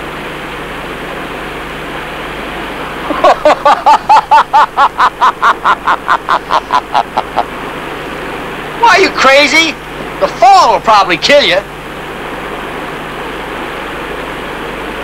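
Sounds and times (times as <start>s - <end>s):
man laughing hard: 3.0s - 7.5s.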